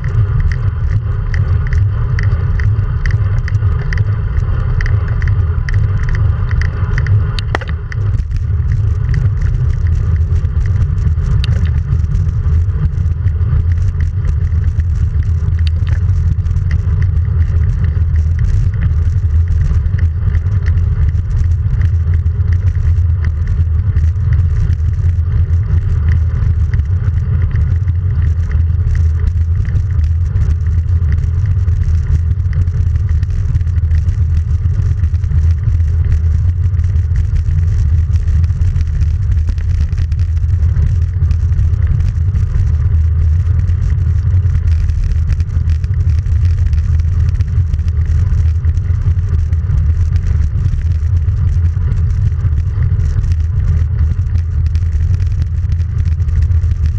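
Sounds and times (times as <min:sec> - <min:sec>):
tyre noise on asphalt: 0:00.0 - 0:56.9
faint clicks: 0:00.1 - 0:04.1, 0:13.2 - 0:56.9.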